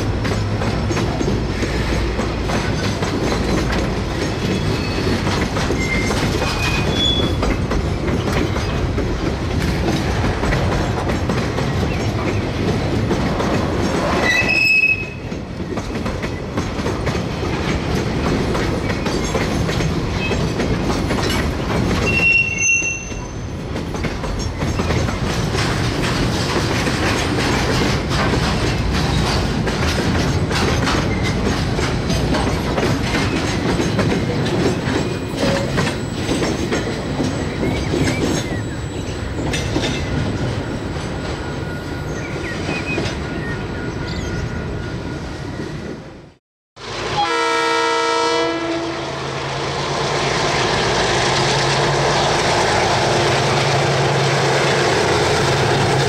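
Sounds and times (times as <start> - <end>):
train wheels clicking over rail joints: 0.0 - 43.6
short horn-like tone: 47.0 - 49.3.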